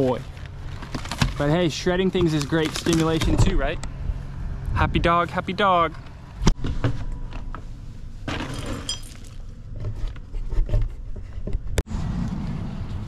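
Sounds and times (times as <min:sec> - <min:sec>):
dry kibble rattling: 0:00.7 - 0:03.6.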